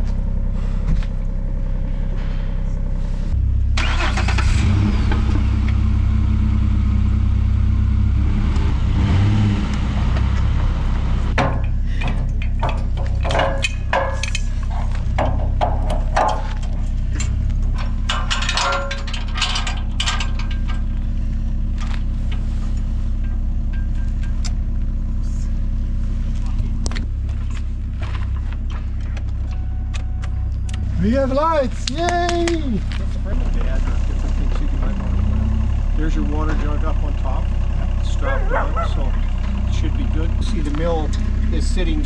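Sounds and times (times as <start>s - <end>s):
truck engine idling: 0.0s - 42.0s
metal chains clanking: 11.6s - 21.7s.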